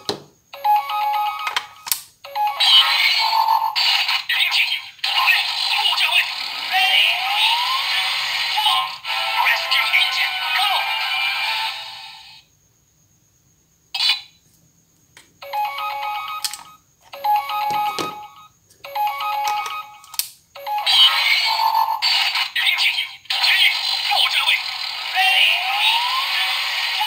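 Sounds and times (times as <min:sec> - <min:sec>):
toy sound effects: 0:00.0 - 0:12.4, 0:14.0 - 0:14.4, 0:15.4 - 0:27.0
electronic ringtone-like tune: 0:00.6 - 0:01.7, 0:02.3 - 0:03.8, 0:15.4 - 0:20.0, 0:20.6 - 0:22.0.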